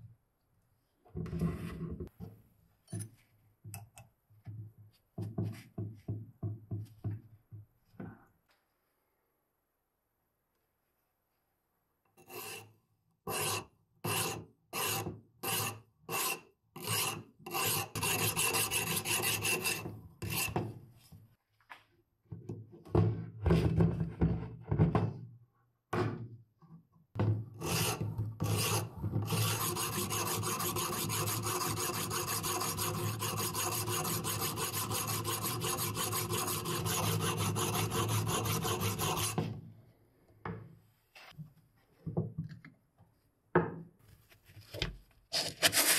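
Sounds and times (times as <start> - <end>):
sharpening stone scraping steel: 12.2 - 12.7, 13.3 - 20.5, 27.6 - 39.4.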